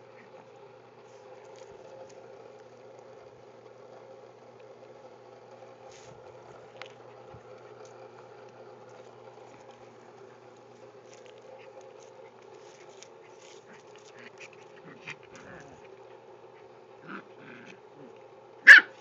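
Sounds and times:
steady background hum: 0.0s - 19.0s
dogs paws scuffling: 5.8s - 16.2s.

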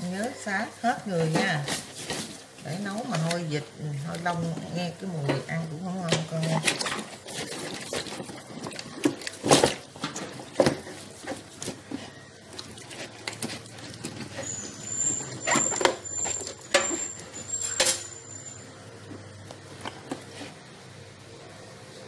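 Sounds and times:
wet skin rubbing and squelching: 6.3s - 16.7s.

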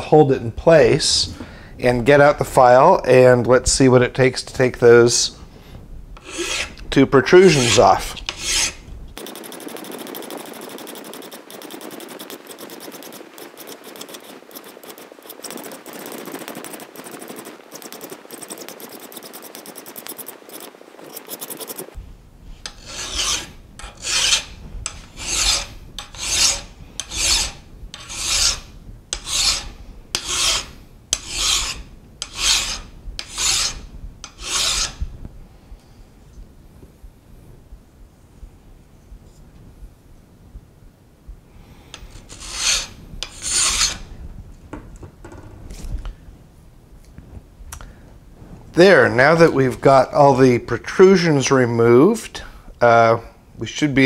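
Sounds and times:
hand file rasping on metal: 6.2s - 21.9s, 22.6s - 35.0s, 42.0s - 44.0s.

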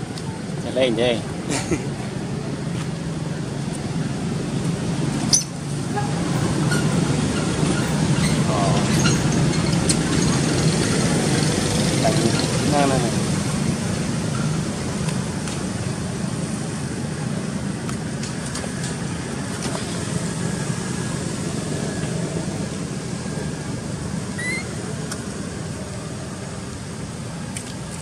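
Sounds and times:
short rising squeak: 5.3s - 5.6s, 24.3s - 24.8s.

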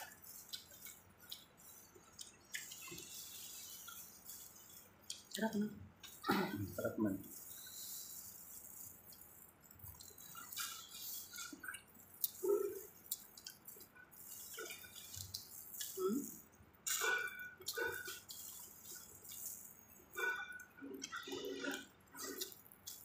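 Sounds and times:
wet chewing and mouth smacks: 0.0s - 6.3s, 7.2s - 23.0s.

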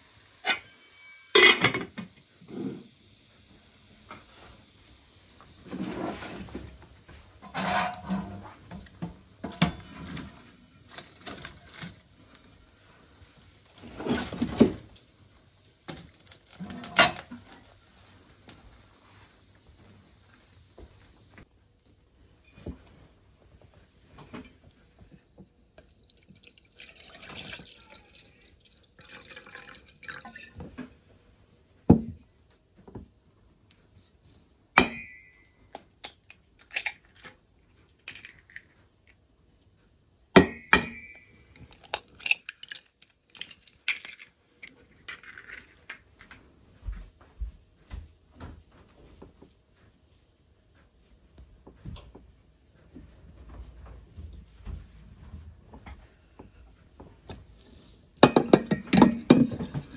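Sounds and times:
kitchen things clinking: 0.4s - 2.1s, 7.4s - 8.4s, 58.2s - 59.9s
milk pouring into a saucepan: 25.8s - 30.7s.

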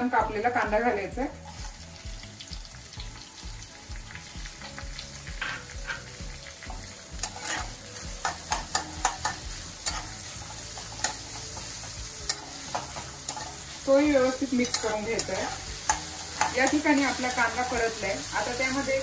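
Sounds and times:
onions sizzling in oil: 0.0s - 19.0s
metal spatula scraping a pan: 5.3s - 19.0s.

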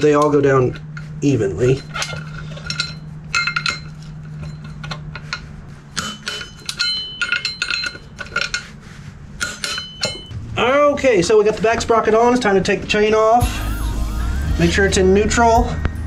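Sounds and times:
metallic clinks: 6.0s - 8.6s.

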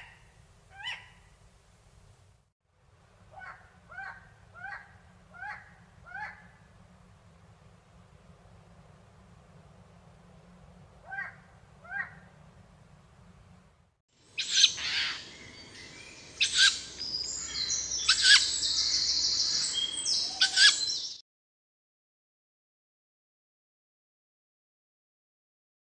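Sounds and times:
owl calls: 0.0s - 1.3s, 3.3s - 6.6s, 11.0s - 12.3s, 14.4s - 21.2s.

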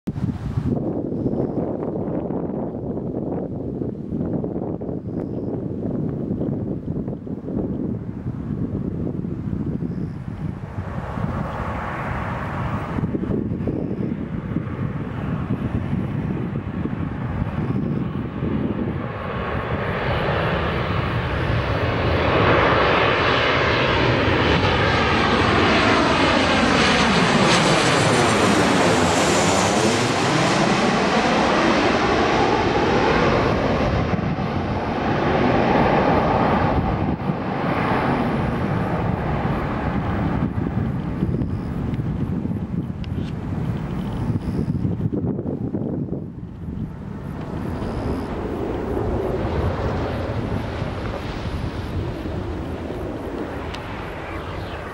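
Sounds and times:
jet engines flying overhead: 0.1s - 54.9s
whooshing sweep: 48.9s - 54.9s.

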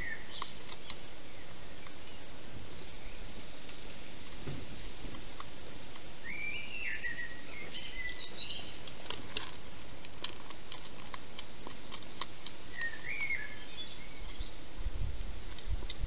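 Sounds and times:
songbird whistling: 0.0s - 1.5s, 6.2s - 8.9s, 12.7s - 14.7s
steady hiss: 0.0s - 16.0s
hedgehog crunching food: 0.3s - 2.0s, 5.0s - 6.1s, 8.1s - 16.0s.

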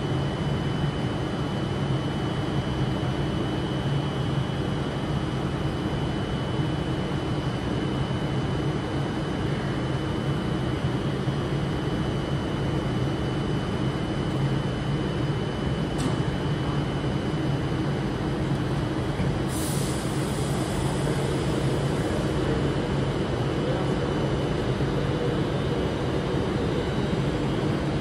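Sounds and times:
train equipment low hum: 0.0s - 28.0s.

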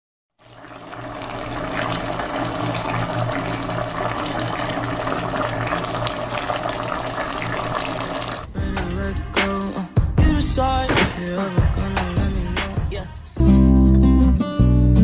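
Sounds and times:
pot bubbling and crackling: 0.4s - 8.5s.

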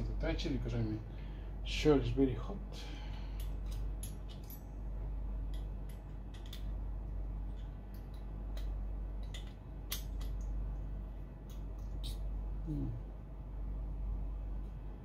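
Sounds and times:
steady low hum: 0.0s - 15.0s
small metallic clicks and taps: 5.5s - 6.7s, 7.6s - 10.6s.

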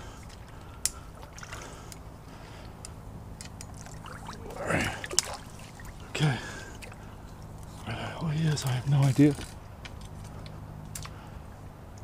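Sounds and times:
shallow water sloshing: 0.0s - 2.6s, 3.4s - 7.9s.

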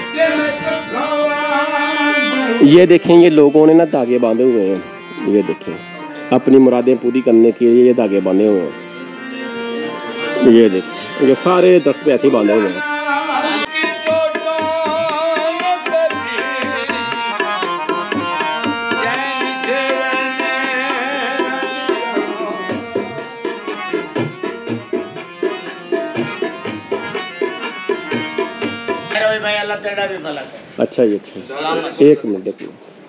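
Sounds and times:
wavering held melody: 0.0s - 29.8s
hand drum playing: 13.6s - 29.2s.

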